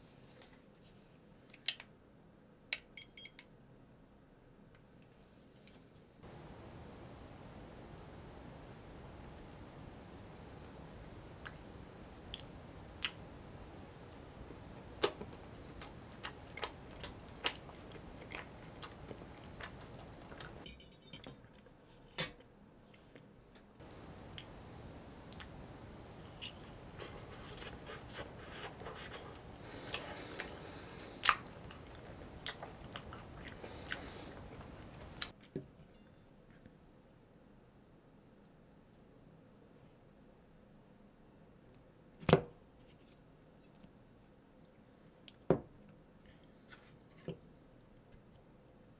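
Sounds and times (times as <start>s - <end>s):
chewing: 14.8s - 20.6s, 26.2s - 35.4s.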